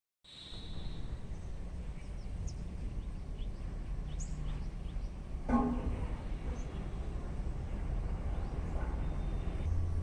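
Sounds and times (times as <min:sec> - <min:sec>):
faint chirp: 0:00.3 - 0:05.2, 0:08.2 - 0:09.9
faint high whine: 0:00.3 - 0:09.8
low rumble of wind on microphone: 0:00.9 - 0:10.0.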